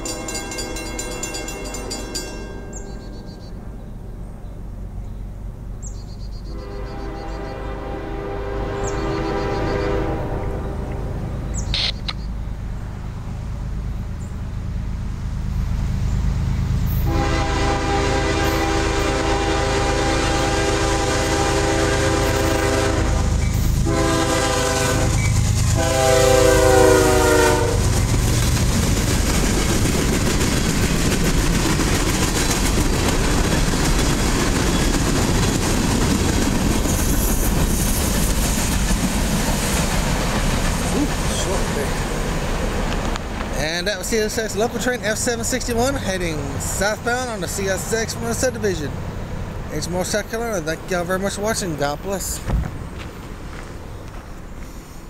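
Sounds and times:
locomotive horn blasts: 0.0 - 3.4, 6.5 - 11.4, 17.0 - 28.0
train rumbling and clattering: 0.0 - 55.0.

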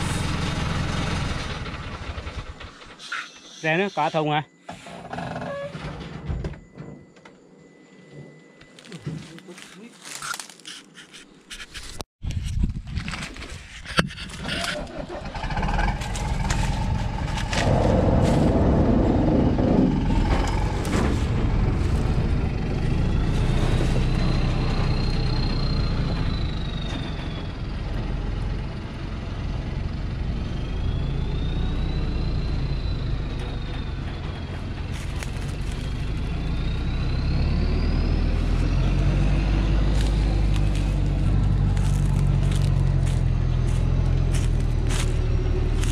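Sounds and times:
truck diesel engine under load: 0.0 - 3.0, 14.1 - 45.9.

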